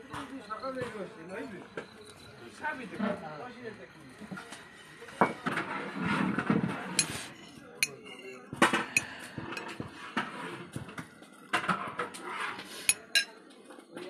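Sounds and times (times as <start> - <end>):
metal spoon scraping china plate: 5.9 - 10.4, 12.0 - 13.3.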